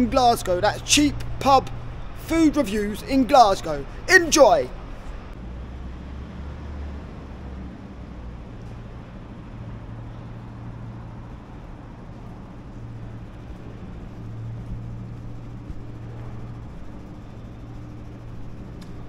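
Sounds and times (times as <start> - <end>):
low mechanical hum: 0.0 - 19.0.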